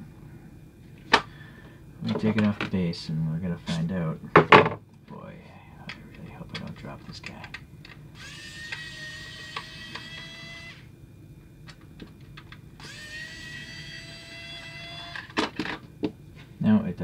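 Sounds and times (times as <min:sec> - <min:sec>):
electric screwdriver whining: 0:08.2 - 0:10.9, 0:12.8 - 0:15.4.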